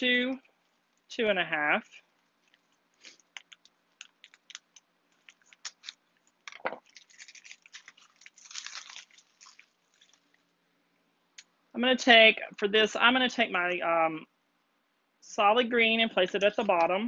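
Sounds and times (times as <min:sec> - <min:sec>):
crinkly rustling: 0:01.9 - 0:10.6.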